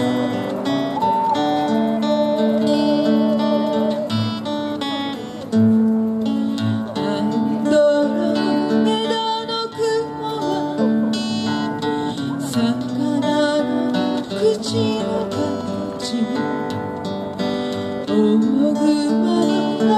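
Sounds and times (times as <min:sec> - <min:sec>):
acoustic guitar: 0:00.0 - 0:19.9
ocarina melody: 0:00.0 - 0:19.9
woman singing: 0:06.9 - 0:11.0, 0:12.1 - 0:16.9, 0:18.1 - 0:19.9.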